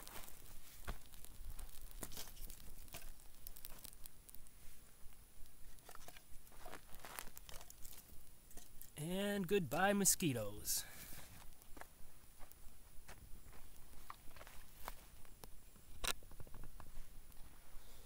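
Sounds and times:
campfire crackling and popping: 0.0s - 17.5s
sticks laid on fire: 0.1s - 4.5s.

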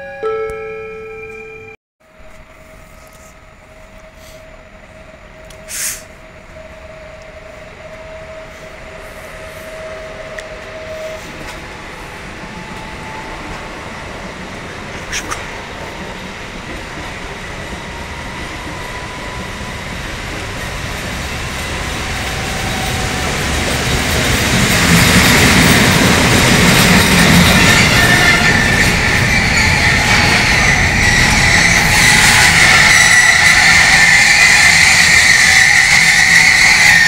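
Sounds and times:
train rumbling past: 2.0s - 37.0s
high metallic squeal: 21.2s - 37.0s.

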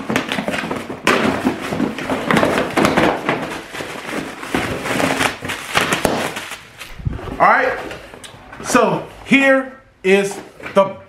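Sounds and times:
tape and cardboard ripping: 0.0s - 7.1s.

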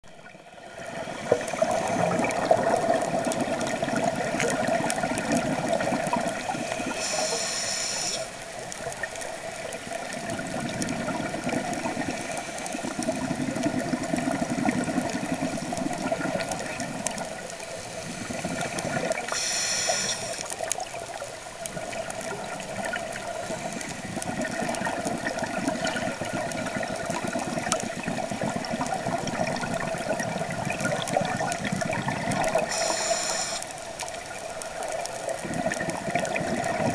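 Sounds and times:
underwater exhaled bubbles: 0.0s - 36.9s
regulator inhalation hiss: 6.5s - 8.4s, 17.7s - 20.5s, 32.6s - 33.8s
steady hum: 19.3s - 20.5s, 32.6s - 33.8s.

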